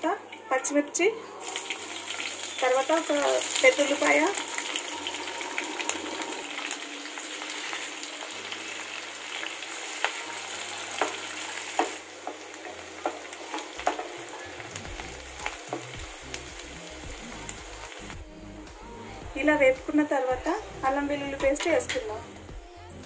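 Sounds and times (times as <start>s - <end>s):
vegetables sizzling in hot oil: 0.0s - 18.3s.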